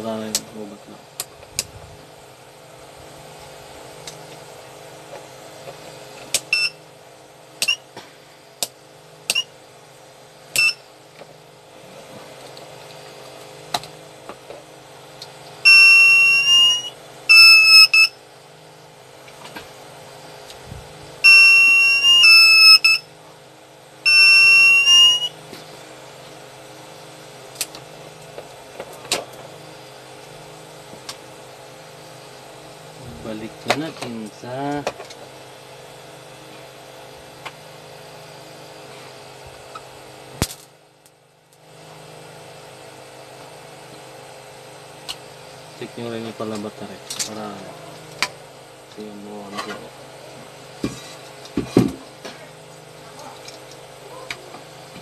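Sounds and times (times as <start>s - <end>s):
steady low hum: 0.0s - 55.0s
buzzer chirps and beeps: 6.5s - 6.8s, 10.6s - 10.8s, 15.6s - 18.2s, 21.2s - 23.1s, 24.0s - 25.4s.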